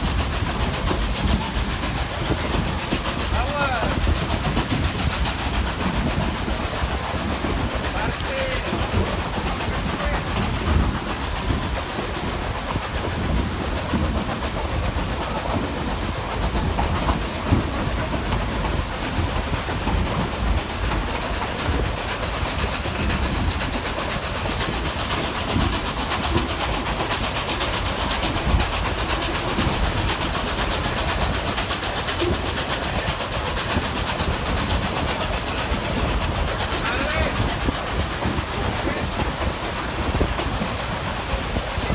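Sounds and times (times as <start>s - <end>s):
train cars rumbling and rattling: 0.0s - 41.9s
wheels clacking over rail joints: 0.0s - 41.9s.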